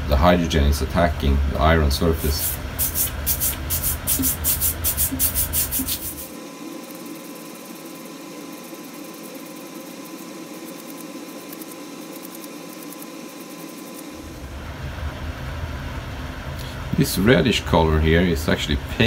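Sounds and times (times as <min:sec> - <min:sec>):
steady faint hum: 0:00.0 - 0:19.0
wire brush scrubbing a bolt: 0:02.3 - 0:06.3.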